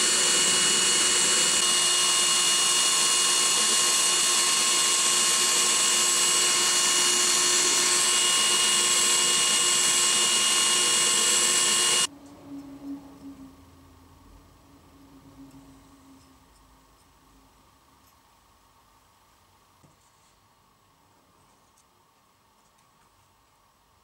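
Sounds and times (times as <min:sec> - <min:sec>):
cordless drill whining: 0:00.0 - 0:12.1.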